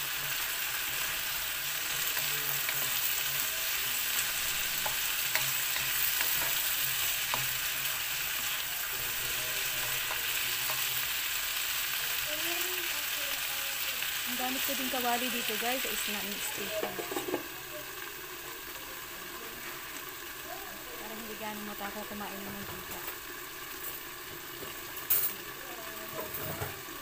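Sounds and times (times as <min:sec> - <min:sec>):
food sizzling in a wok: 0:00.0 - 0:27.0
wooden spatula scraping a pan: 0:00.1 - 0:11.2.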